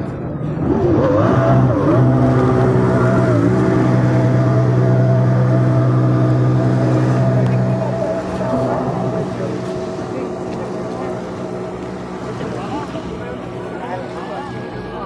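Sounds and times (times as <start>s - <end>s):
jet ski engine revving: 0.4s - 15.0s.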